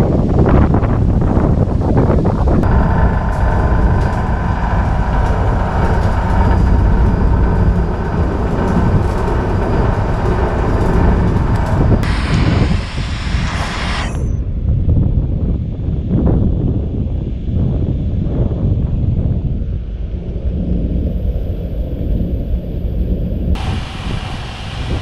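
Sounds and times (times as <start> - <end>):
wind buffeting microphone: 0.0 - 25.0
spray hiss: 11.6 - 14.4, 23.6 - 25.0.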